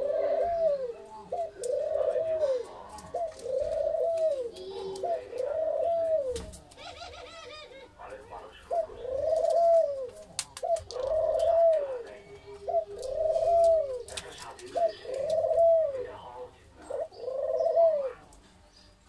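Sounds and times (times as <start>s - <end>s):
doves cooing: 0.0s - 18.4s.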